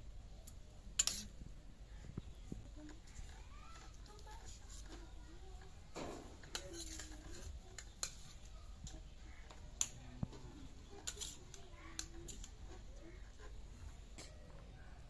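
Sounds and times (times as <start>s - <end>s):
spoon clinking on steel plates: 1.0s - 1.3s
spoon scraping: 1.0s - 1.4s, 2.7s - 9.6s, 10.5s - 14.2s.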